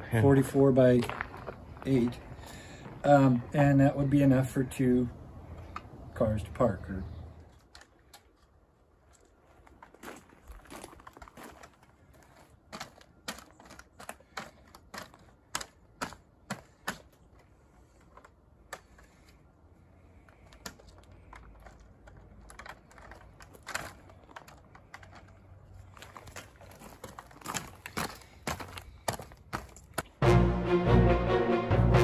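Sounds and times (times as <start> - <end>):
plastic grids clicking: 12.3 - 19.4, 20.2 - 30.1.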